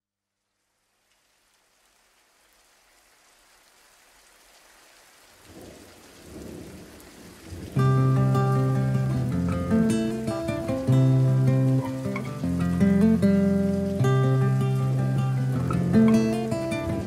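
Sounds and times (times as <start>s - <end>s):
rain hissing: 0.4s - 17.0s
strummed guitar music: 7.8s - 17.0s.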